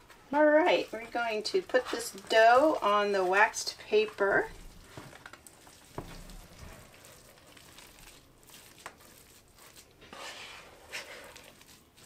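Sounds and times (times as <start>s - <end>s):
waxed paper rustling: 1.6s - 12.0s
plastic bowl scraping: 10.0s - 11.6s.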